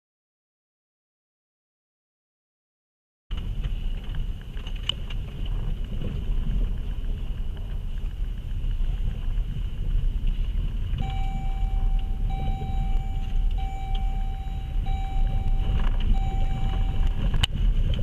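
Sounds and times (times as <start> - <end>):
tyres rumbling on gravel: 3.3 - 18.0
steady repeating tone: 11.0 - 17.3.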